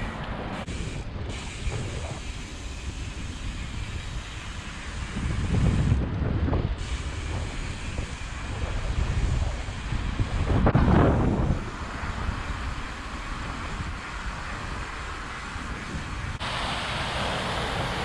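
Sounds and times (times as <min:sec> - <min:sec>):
bike tyres rolling over paving: 0:00.0 - 0:16.4
wind rumbling on microphone: 0:00.0 - 0:18.0.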